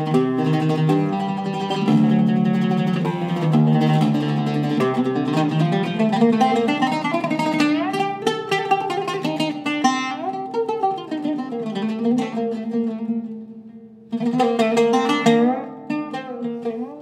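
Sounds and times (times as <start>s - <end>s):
oud plucked melody: 0.0s - 17.0s.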